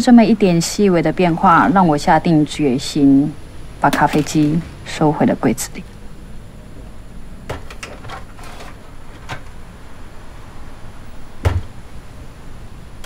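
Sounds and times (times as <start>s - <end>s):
cupboard door thump: 11.4s - 11.7s.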